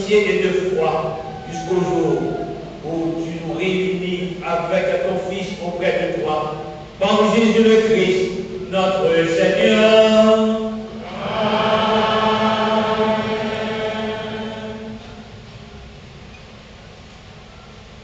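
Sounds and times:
man chanting a prayer: 0.0s - 10.8s.

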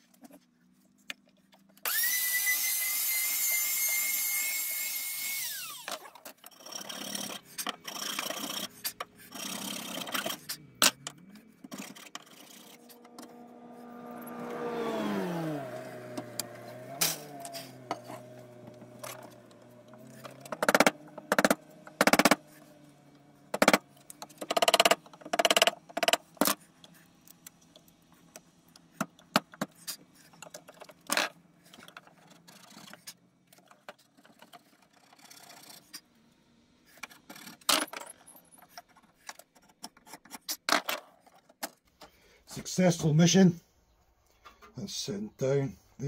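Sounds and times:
chisel cutting wood: 1.8s - 36.1s.

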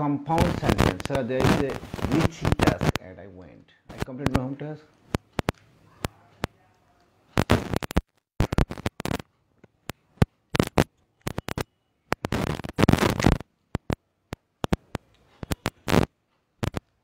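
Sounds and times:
microphone crackles and pops: 0.3s - 3.1s, 3.9s - 6.2s, 7.3s - 16.9s.

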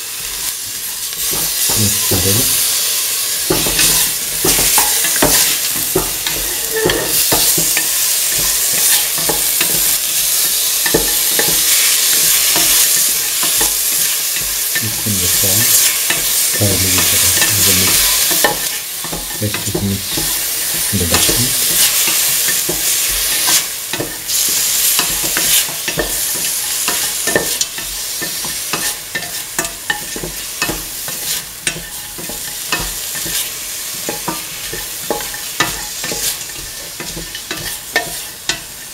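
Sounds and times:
food sizzling in hot oil: 0.0s - 38.9s
spatula scraping metal pan: 3.4s - 38.9s.

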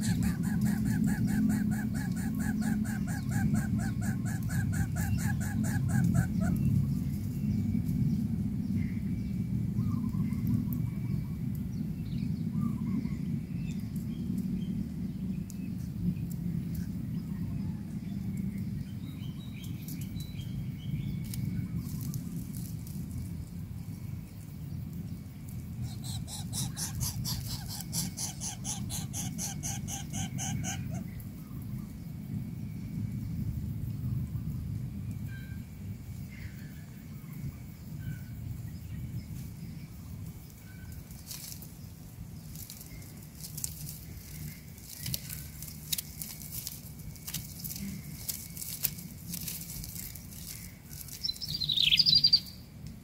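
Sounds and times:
bird chirps: 0.0s - 7.7s, 25.8s - 31.6s, 50.1s - 52.7s
steady low rumble: 0.0s - 53.0s.

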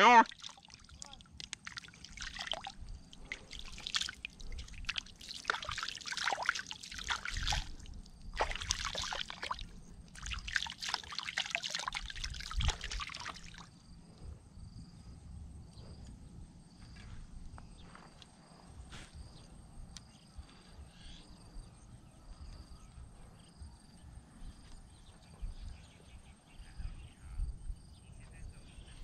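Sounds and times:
insect chirping: 0.0s - 29.0s
water trickling and dripping: 0.1s - 13.8s
hands splashing in river water: 0.3s - 13.7s.

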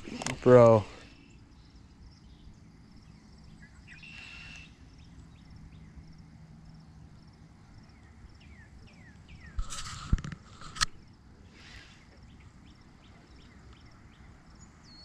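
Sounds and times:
birds chirping: 0.0s - 10.1s, 10.9s - 15.0s
high bird whistle: 3.9s - 4.9s.

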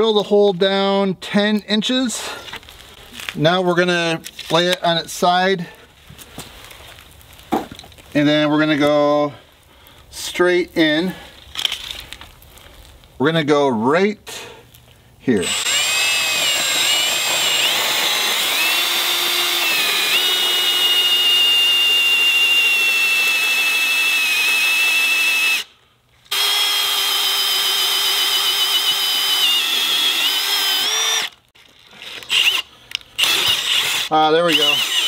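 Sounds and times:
hammer drill boring into log: 15.4s - 25.7s, 26.3s - 31.4s, 32.0s - 35.0s.

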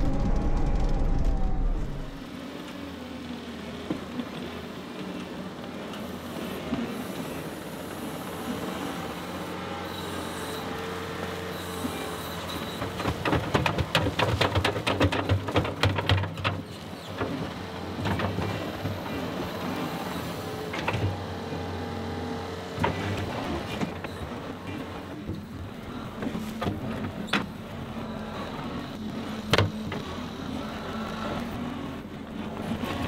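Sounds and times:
diesel engine running: 0.0s - 3.8s.

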